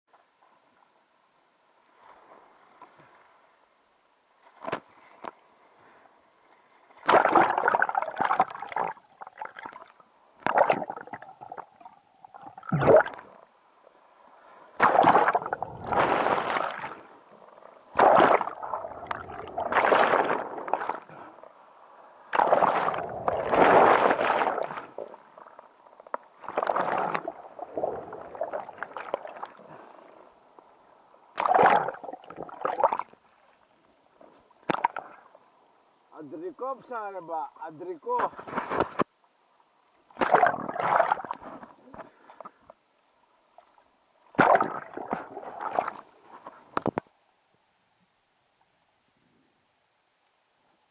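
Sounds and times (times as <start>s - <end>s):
sea water sloshing and gurgling: 6.6s - 33.6s, 34.5s - 35.4s, 40.1s - 42.7s, 43.5s - 46.9s.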